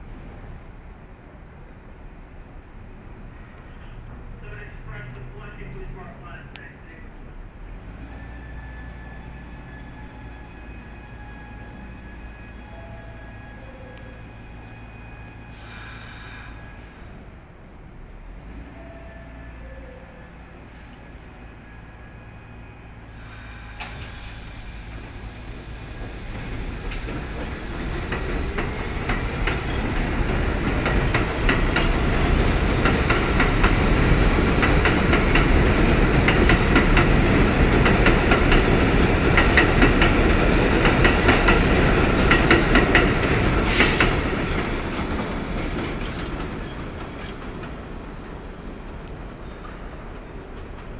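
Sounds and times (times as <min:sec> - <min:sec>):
train wheels clacking over rails: 0:23.1 - 0:50.9.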